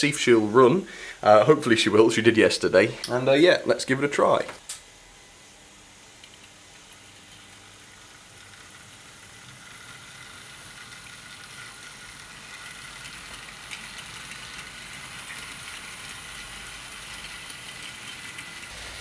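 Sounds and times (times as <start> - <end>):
small electric motor whir: 6.8 - 19.0
model train wheels rattling: 8.4 - 19.0.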